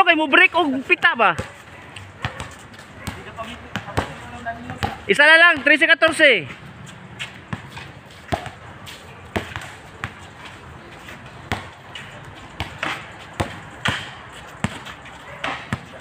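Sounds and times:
basketball bouncing on concrete: 0:01.0 - 0:06.4, 0:07.1 - 0:08.7, 0:09.3 - 0:10.3, 0:11.2 - 0:16.0.

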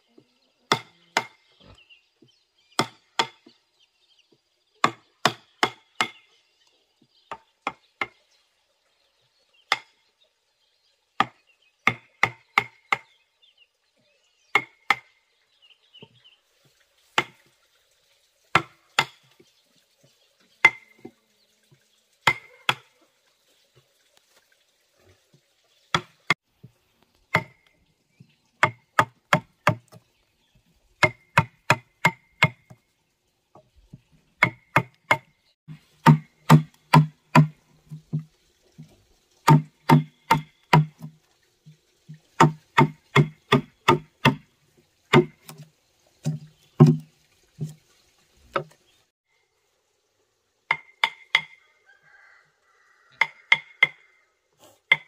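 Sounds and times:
mallet striking steel chisel: 0:36.0 - 0:38.2.

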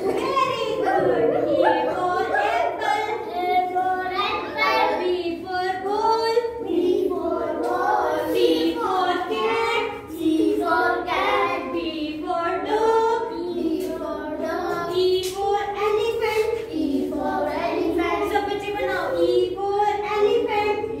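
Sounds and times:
children singing: 0:00.0 - 0:21.0
woman singing: 0:05.0 - 0:06.6, 0:11.6 - 0:13.5.

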